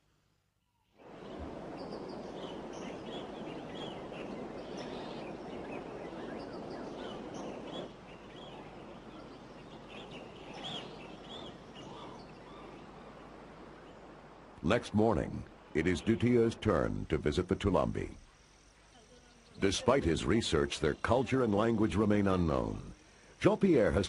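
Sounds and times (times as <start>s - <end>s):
high bird calls: 1.0s - 14.1s
rushing river water: 1.0s - 17.4s.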